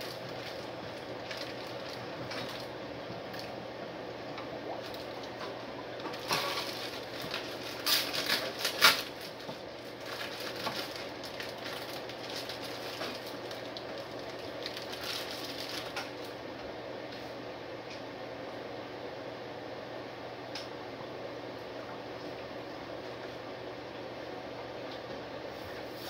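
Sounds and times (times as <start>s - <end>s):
plastic packaging crinkling: 0.0s - 3.6s, 6.0s - 16.4s
fan hum: 0.0s - 26.0s.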